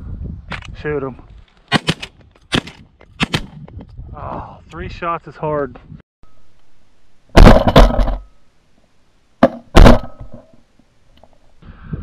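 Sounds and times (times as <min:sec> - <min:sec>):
suppressed shotgun shots: 0:09.4 - 0:10.4.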